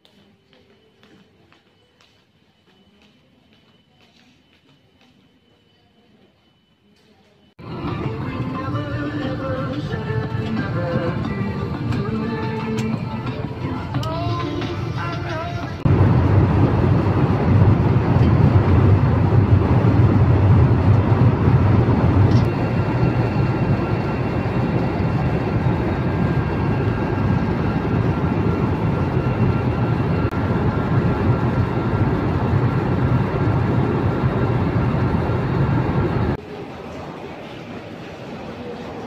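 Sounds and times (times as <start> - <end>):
faint steady whines: 0.0 - 36.4
jet engines at high power: 7.6 - 36.4.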